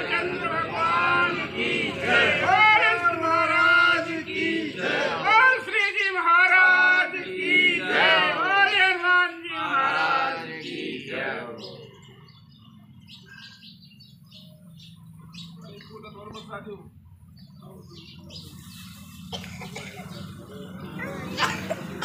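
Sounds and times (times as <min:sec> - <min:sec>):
men singing a hymn: 0:00.0 - 0:12.0
faint bird chirps: 0:11.6 - 0:16.5.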